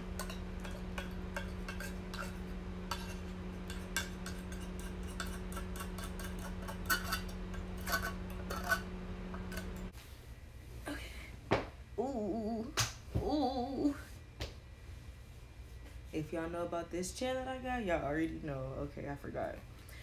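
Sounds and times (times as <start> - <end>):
steady low hum: 0.0 - 20.0
metal lid scraping a tin: 1.4 - 9.8.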